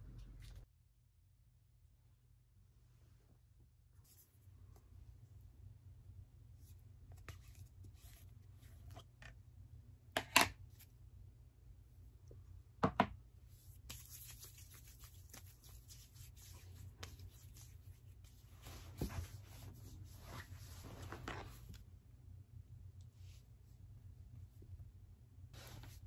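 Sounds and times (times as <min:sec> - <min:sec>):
lotion rubbing on skin: 0:13.8 - 0:20.9.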